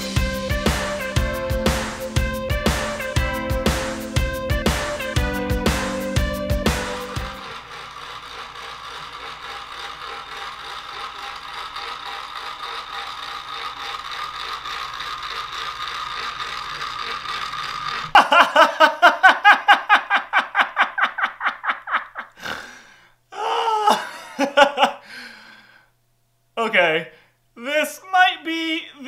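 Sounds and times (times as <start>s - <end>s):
stepper motor whirring: 0.0s - 18.2s.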